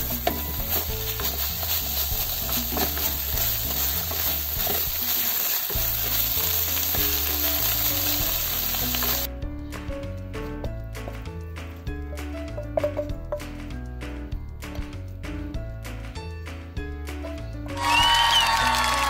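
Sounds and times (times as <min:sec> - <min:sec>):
food sizzling in a frying pan: 0:00.0 - 0:09.3
wooden spatula stirring: 0:00.0 - 0:09.3.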